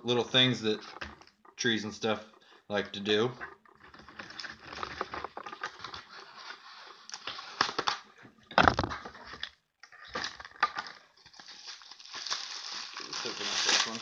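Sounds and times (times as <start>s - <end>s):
plastic packaging crinkling: 10.1s - 14.0s.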